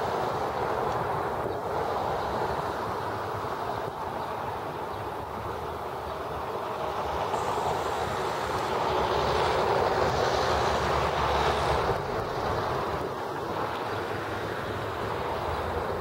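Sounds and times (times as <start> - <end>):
heavy vehicle rumbling past: 7.0 - 16.0.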